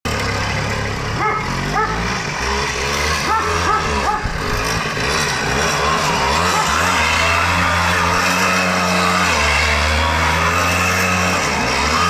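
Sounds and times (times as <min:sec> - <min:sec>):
two-stroke moped engine revving: 0:00.1 - 0:12.0
short yelps: 0:01.2 - 0:02.0, 0:03.2 - 0:04.3.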